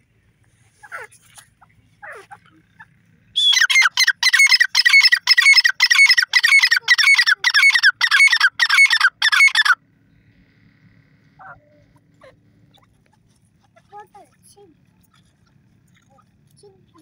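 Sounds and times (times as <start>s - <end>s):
francolin calling shrill notes: 3.4s - 9.8s.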